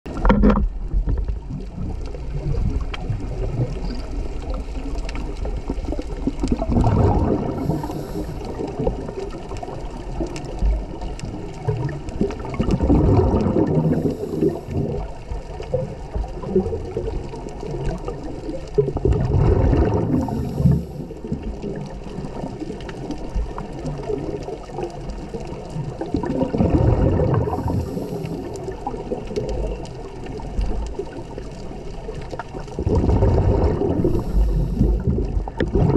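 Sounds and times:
exhaled bubbles rushing: 0.1 - 35.9
wash of water: 1.5 - 23.2, 25.1 - 31.5, 32.2 - 35.9
diver breathing through regulator: 7.1 - 8.8, 13.6 - 15.0, 20.0 - 21.2, 27.4 - 28.7, 33.6 - 35.3.

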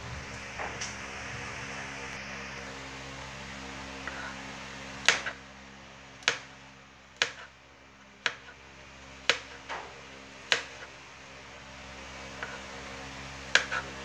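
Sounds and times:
knife tapping cutting board: 7.2 - 7.5, 9.3 - 9.6, 13.6 - 13.8.

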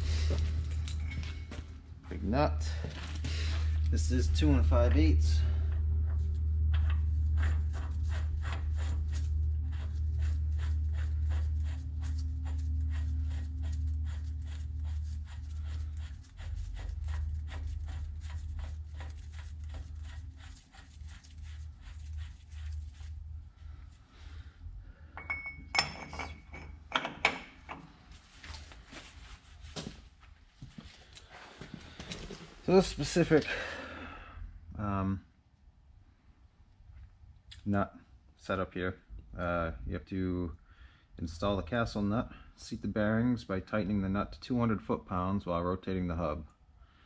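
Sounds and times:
steady low hum: 0.0 - 47.0
metal tools clinking: 0.4 - 1.6.

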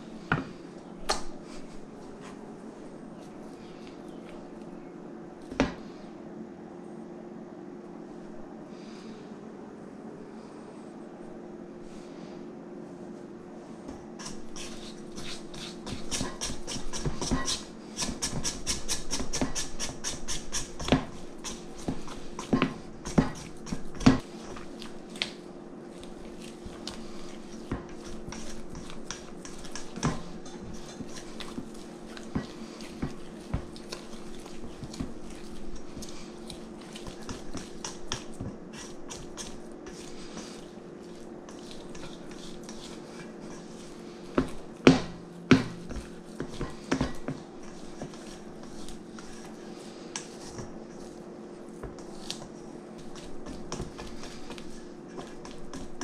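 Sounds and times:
steady low hum: 0.0 - 56.0
spatula stirring dough in bowl: 13.9 - 56.0.

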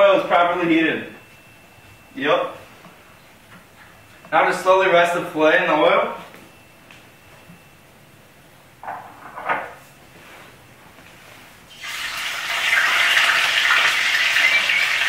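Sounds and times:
oil sizzling loudly: 11.7 - 15.0.

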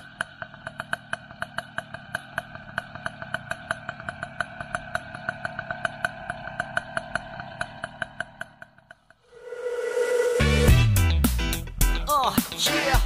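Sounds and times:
small motor running: 0.0 - 8.9.

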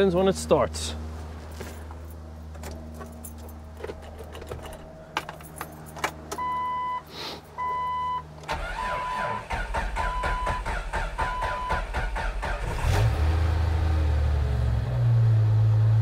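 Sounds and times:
keys clicking and jangling: 2.1 - 6.4
starter cranking engine: 8.5 - 13.1.

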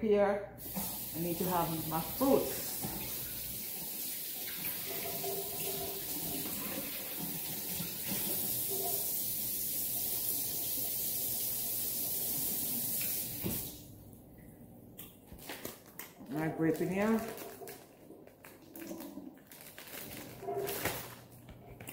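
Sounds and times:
tap running into sink: 2.7 - 3.3, 12.3 - 13.7.

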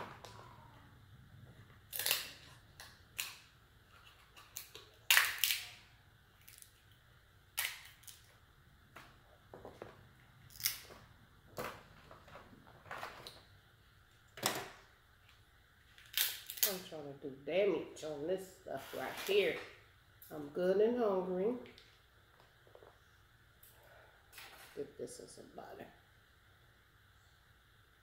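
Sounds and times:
crab shells cracking: 1.9 - 3.4, 4.4 - 5.8, 10.5 - 11.0, 16.0 - 16.7.

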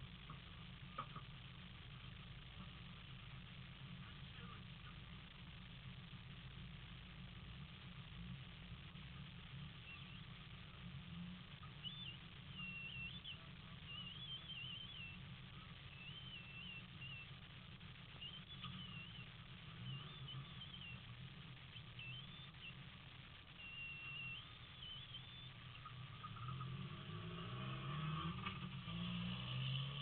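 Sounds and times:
low steady rumble: 0.0 - 30.0
bird singing warbling phrases: 9.8 - 10.3, 11.6 - 17.4, 18.1 - 26.9.

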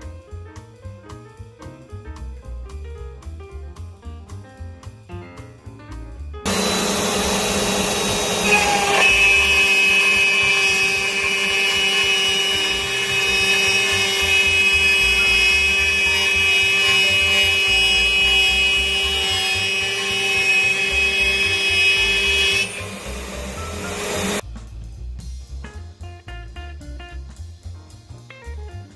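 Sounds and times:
milling cutting noise: 6.5 - 24.4
router spindle whine: 6.5 - 24.4
sharp high whine: 6.5 - 24.4.

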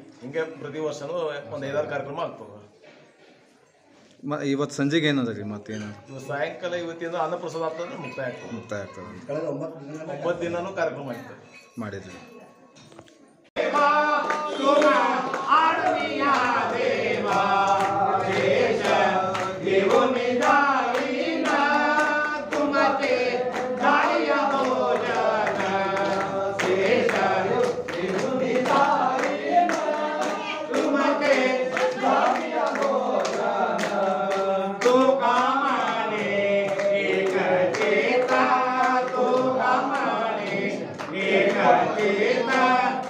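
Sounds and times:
group singing devotional song: 13.6 - 43.0
hand claps: 13.6 - 43.0.

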